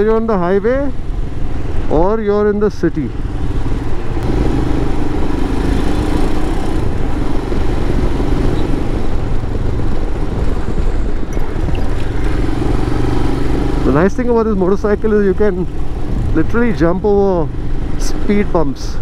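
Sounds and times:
wind and road noise: 0.0 - 19.0
motorcycle engine running: 3.0 - 18.4.

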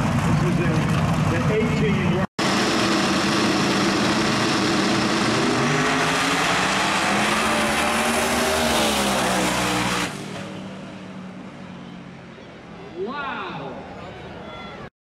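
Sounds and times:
race cars launching full throttle: 2.4 - 12.8.

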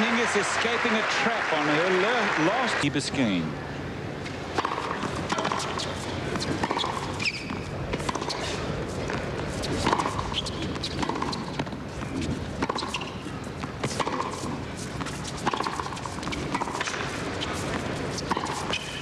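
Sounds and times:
tennis ball bouncing: 4.2 - 19.0
rackets striking tennis ball: 4.3 - 19.0.

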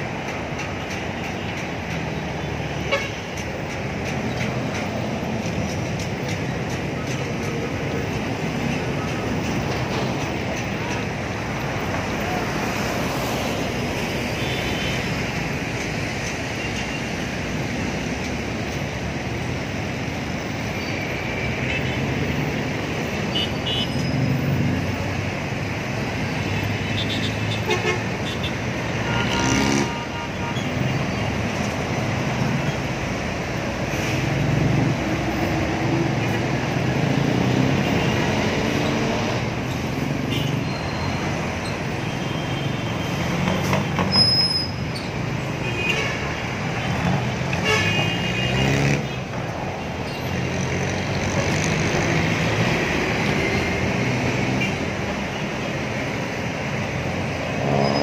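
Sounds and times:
road traffic noise: 0.0 - 58.0
vehicle horn: 2.8 - 3.2, 27.0 - 30.7, 47.6 - 48.7.

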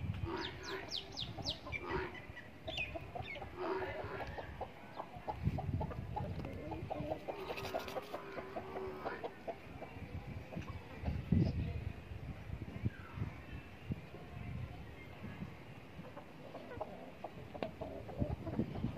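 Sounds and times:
chickens clucking: 0.2 - 11.6, 16.0 - 18.9.

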